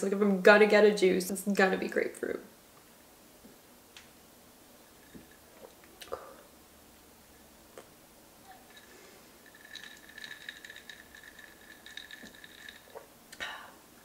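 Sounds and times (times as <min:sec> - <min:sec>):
ice cubes rattling in glass: 0:08.6 - 0:13.1.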